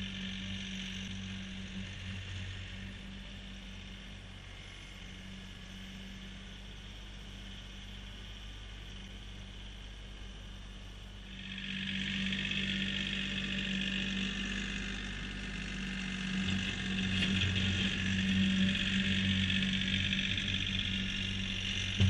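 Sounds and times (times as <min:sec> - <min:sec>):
diesel tractor driving: 0:11.2 - 0:22.0.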